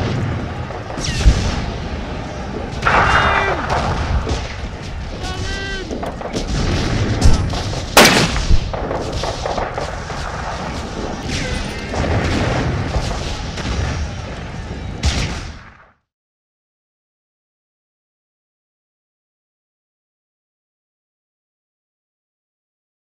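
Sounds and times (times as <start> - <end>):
blank gunshots: 0.0 - 14.2
steady low rumble: 0.0 - 15.6.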